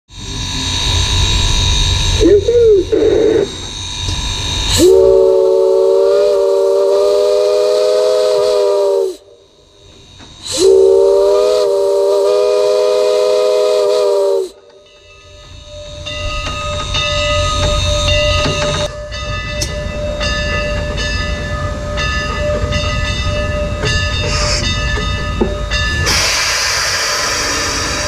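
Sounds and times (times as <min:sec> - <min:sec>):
rush of steam: 0:00.1 - 0:19.0, 0:24.0 - 0:25.1, 0:25.7 - 0:28.0
low train rumble: 0:00.1 - 0:28.0
steam locomotive chime whistle: 0:00.2 - 0:28.0.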